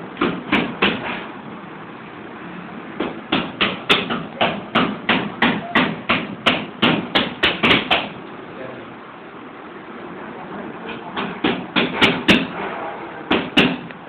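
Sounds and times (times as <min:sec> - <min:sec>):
quick sharp knocks: 0:03.0 - 0:08.2.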